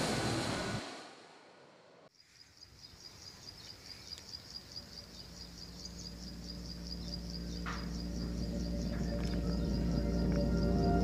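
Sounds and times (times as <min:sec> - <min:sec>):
insect chirping: 0:02.1 - 0:11.0
soft ambient music with drone: 0:05.5 - 0:11.0.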